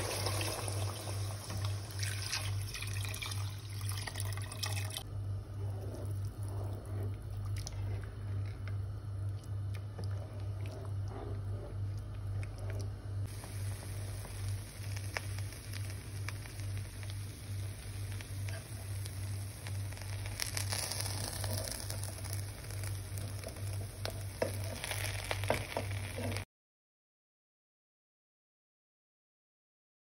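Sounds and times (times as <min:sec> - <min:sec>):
stock bubbling and sizzling: 0:00.0 - 0:26.5
pulsing low hum: 0:05.1 - 0:18.2
spatula scraping pot: 0:05.5 - 0:08.8, 0:09.9 - 0:12.9, 0:23.4 - 0:26.4.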